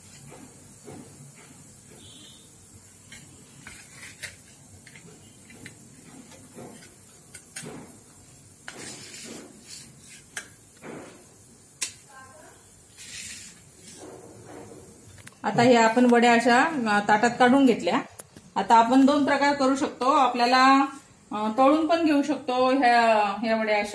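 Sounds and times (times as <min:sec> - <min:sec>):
spatula scraping steel plate: 0:03.0 - 0:07.8, 0:08.7 - 0:10.5, 0:12.9 - 0:14.2.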